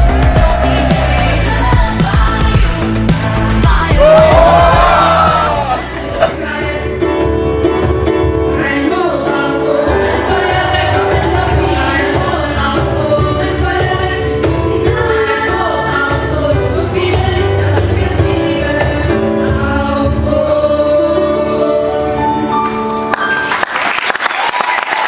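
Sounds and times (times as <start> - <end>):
women's choir singing: 8.8 - 22.2.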